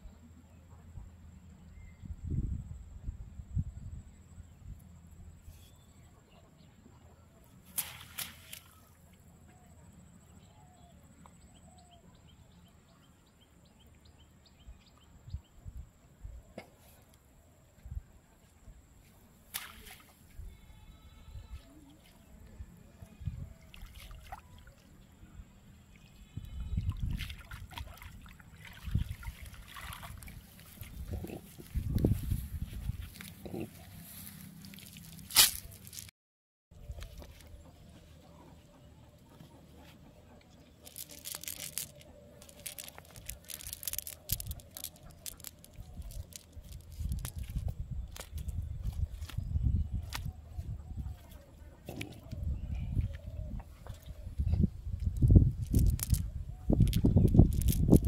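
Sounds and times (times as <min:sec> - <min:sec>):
water trickling and splashing: 0:19.5 - 0:20.3, 0:23.3 - 0:25.1, 0:25.9 - 0:33.4, 0:34.1 - 0:36.1, 0:40.8 - 0:49.2
net mesh rustling and clicking: 0:34.8 - 0:36.1, 0:40.8 - 0:48.5, 0:55.6 - 0:56.2, 0:56.8 - 0:58.0.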